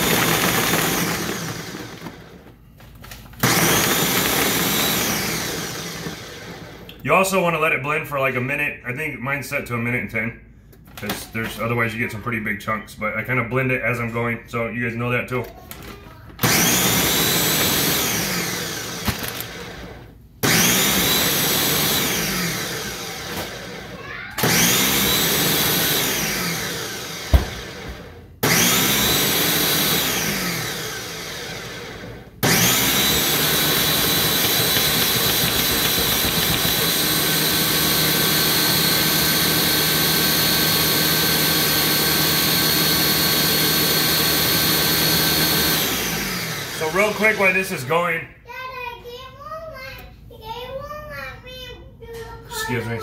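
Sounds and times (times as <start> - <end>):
blender motor blending: 0.0 - 2.5, 3.4 - 6.9, 16.4 - 48.1.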